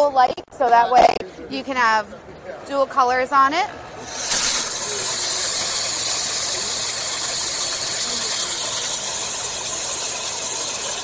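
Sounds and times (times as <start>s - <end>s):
fog machine hissing: 4.0s - 11.0s.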